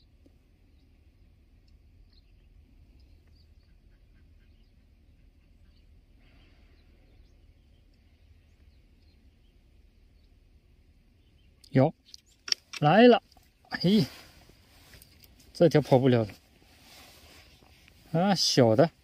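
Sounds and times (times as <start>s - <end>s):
faint bird chirps: 0.0s - 12.5s.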